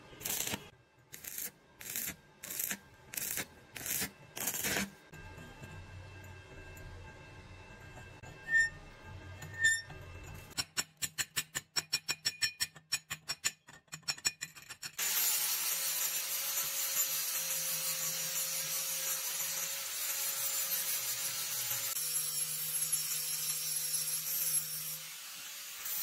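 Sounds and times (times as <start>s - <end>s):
angle grinder grinding steel: 0.2s - 4.9s, 15.0s - 26.0s.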